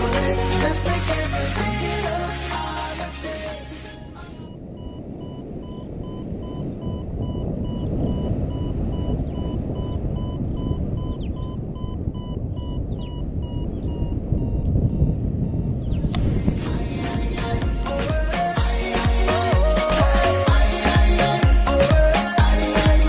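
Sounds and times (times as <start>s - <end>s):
wind rushing over microphone: 3.9s - 18.6s
variometer short beeps: 4.4s - 16.1s.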